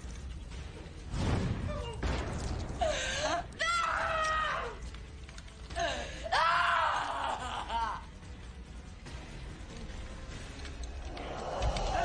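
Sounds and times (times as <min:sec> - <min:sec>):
woman screaming: 0:03.3 - 0:04.8, 0:06.2 - 0:08.0.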